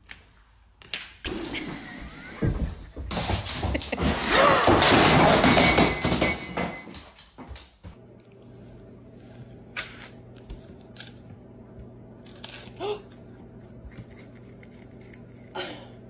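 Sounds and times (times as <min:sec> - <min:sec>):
person biting crisp snack: 0:12.2 - 0:15.6.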